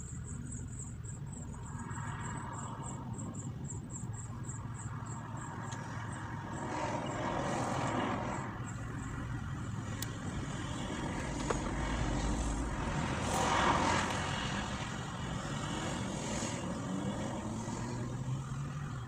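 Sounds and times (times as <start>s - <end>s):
low vehicle rumble: 0.0s - 19.0s.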